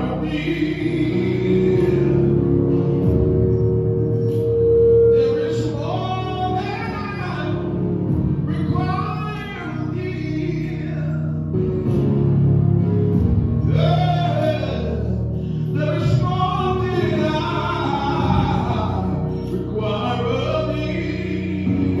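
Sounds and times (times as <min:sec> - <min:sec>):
man singing into a microphone: 0:00.0 - 0:02.8, 0:05.1 - 0:07.8, 0:08.4 - 0:11.6, 0:13.6 - 0:22.0
low musical accompaniment: 0:00.0 - 0:22.0.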